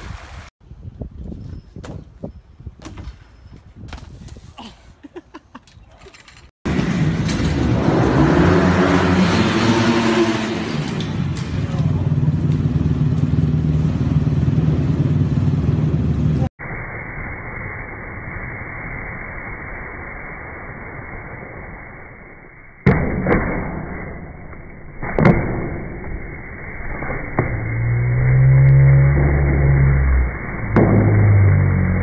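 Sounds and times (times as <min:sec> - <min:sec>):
dirt bike engine running: 0:11.0 - 0:16.5.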